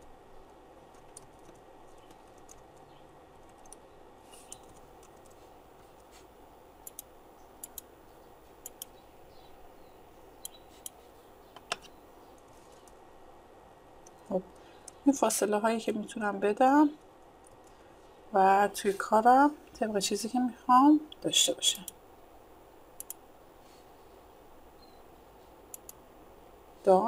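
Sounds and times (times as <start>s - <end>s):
faint steady hiss: 0.0s - 27.0s
keyboard and mouse clicking: 0.9s - 5.4s, 6.8s - 7.9s, 8.6s - 9.0s, 10.4s - 13.0s, 23.0s - 23.2s, 25.7s - 26.0s.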